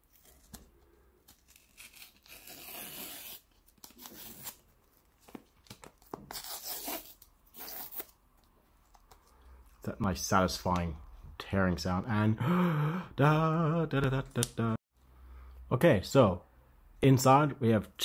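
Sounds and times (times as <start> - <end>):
cardboard strip ripping: 1.3 - 4.6.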